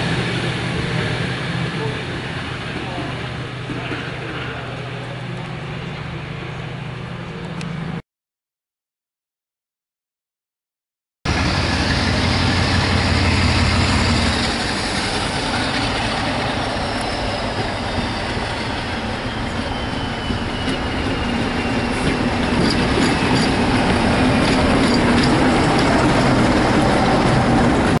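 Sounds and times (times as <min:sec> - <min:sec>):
diesel locomotive engine running: 0:00.0 - 0:08.0, 0:11.3 - 0:28.0
train wheels clicking on rails: 0:11.3 - 0:28.0.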